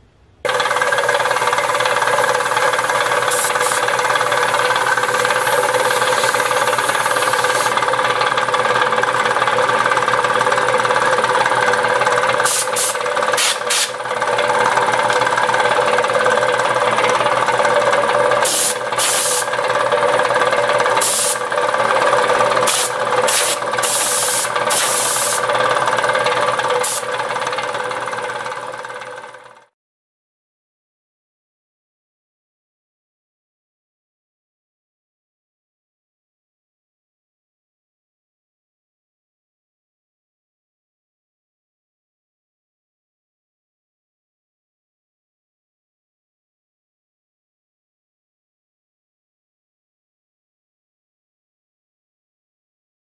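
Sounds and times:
compressor hissing bursts: 0.5s - 7.8s, 12.4s - 14.0s, 18.4s - 19.5s, 21.0s - 21.5s, 22.6s - 25.5s, 26.8s - 27.1s
air compressor hum and clatter: 0.5s - 29.7s.

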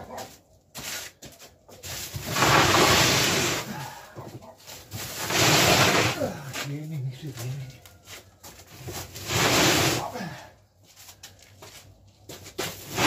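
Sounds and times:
cardboard box scraping on concrete: 0.1s - 4.0s, 4.7s - 6.7s, 8.6s - 10.4s, 12.4s - 13.0s.

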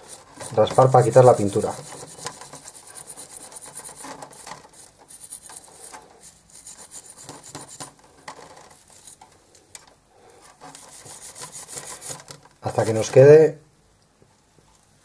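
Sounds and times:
steel wool scrubbing metal: 0.0s - 7.9s.

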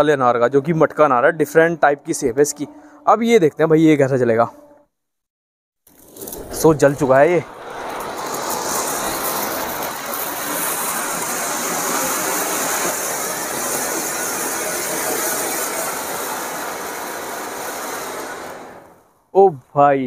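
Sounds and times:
firework fountain hissing: 5.9s - 19.1s.

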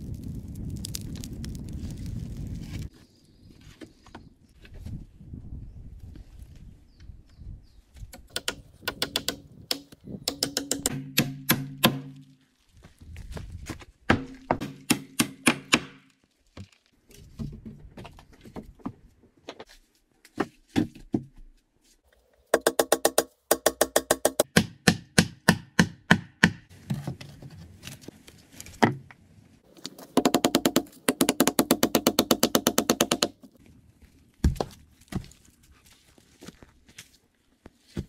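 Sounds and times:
hammer driving nails into wood: 8.2s - 12.2s, 14.1s - 16.0s, 22.6s - 26.6s, 29.9s - 33.4s.

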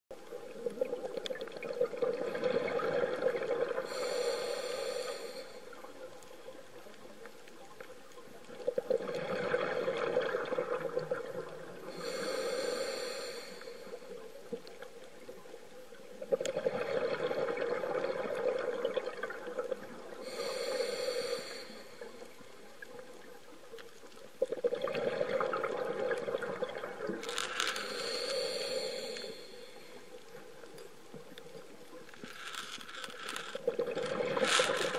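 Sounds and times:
hissing breath through regulator: 3.7s - 6.2s, 11.8s - 14.2s, 20.2s - 22.5s, 27.3s - 30.3s.

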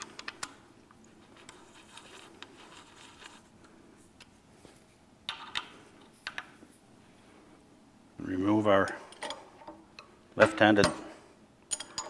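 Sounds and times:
handling noise and small clicks: 0.0s - 4.4s.

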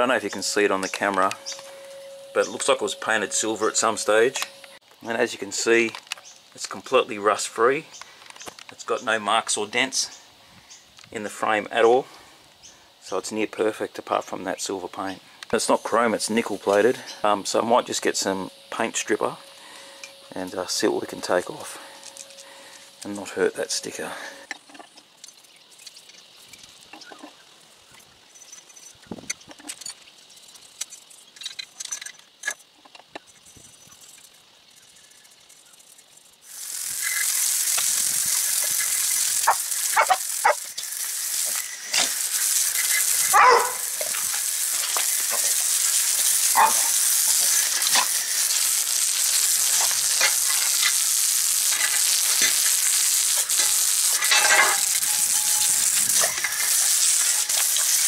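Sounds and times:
hose spraying water on metal: 0.0s - 4.7s, 14.9s - 28.0s, 33.3s - 58.0s.

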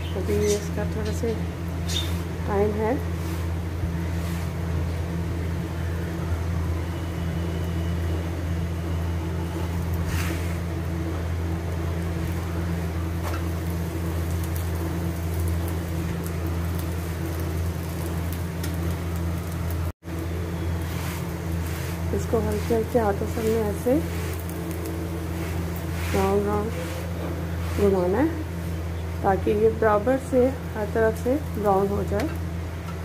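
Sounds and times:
metal spatula scraping griddle: 10.0s - 10.7s, 20.8s - 28.2s.

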